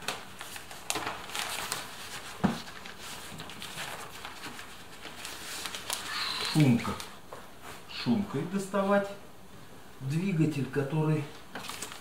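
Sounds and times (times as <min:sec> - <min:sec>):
sheet crinkling and rustling: 0:00.0 - 0:07.9, 0:11.3 - 0:12.0.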